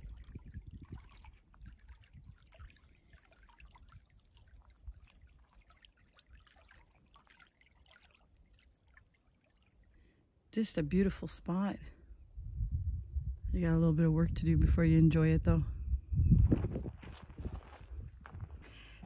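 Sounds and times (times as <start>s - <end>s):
small waves lapping on pebbles: 0.0s - 10.0s.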